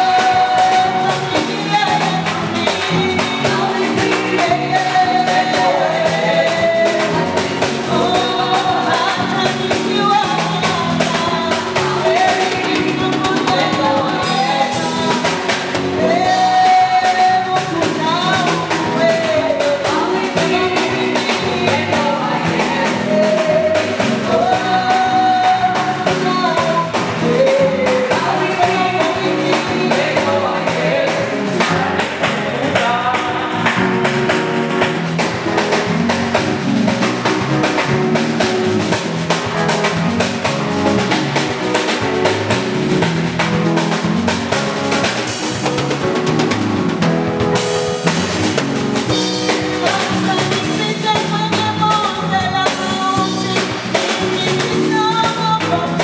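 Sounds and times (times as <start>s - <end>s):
backing singers: 0.0s - 10.1s, 11.5s - 36.7s
woman singing lead: 0.0s - 44.0s, 48.0s - 56.0s
band with drums and keyboard: 0.0s - 56.0s.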